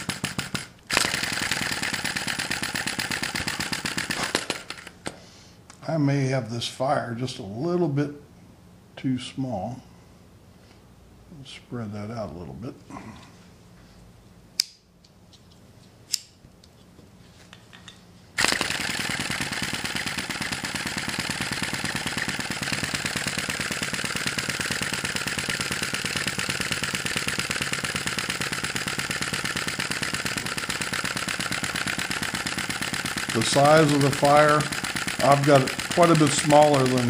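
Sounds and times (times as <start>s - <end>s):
model engine rapid clatter: 0.0s - 5.0s, 18.4s - 37.0s
sharp clicks: 18.4s - 37.0s.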